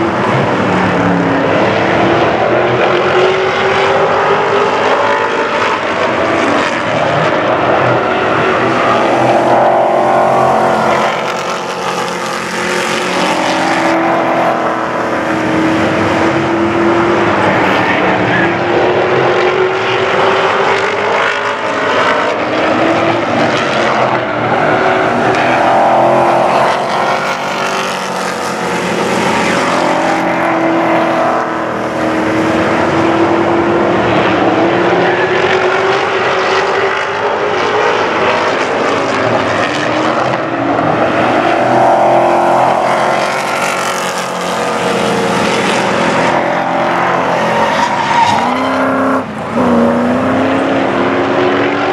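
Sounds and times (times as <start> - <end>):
race trucks at full throttle: 0.0 - 51.9.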